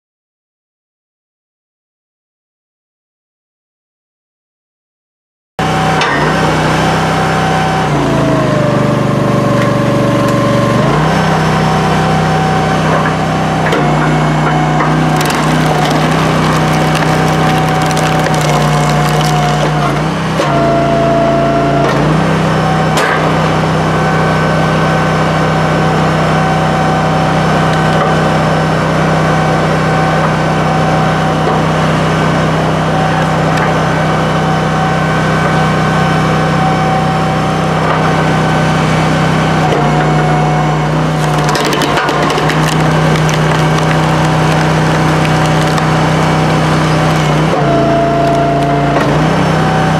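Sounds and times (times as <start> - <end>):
log splitter engine running: 5.8 - 22.4, 37.8 - 49.9
wood cracking and splintering: 14.8 - 20.1, 41.1 - 49.2.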